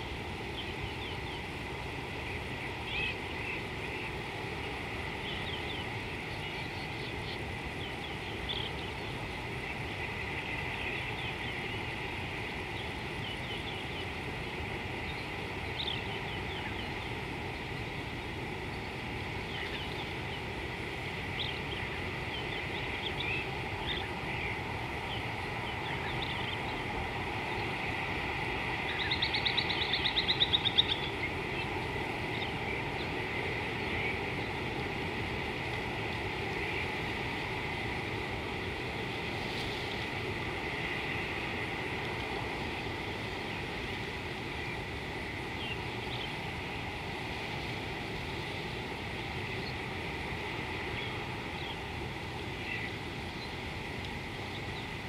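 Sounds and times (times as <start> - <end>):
birds chirping: 2.3 - 35.8.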